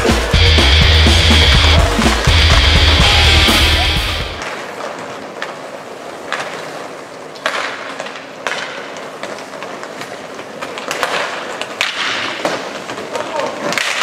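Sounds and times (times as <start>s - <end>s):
skate wheels rolling on floor: 4.4s - 14.0s
clacks of sticks and puck: 6.3s - 6.7s, 7.3s - 14.0s.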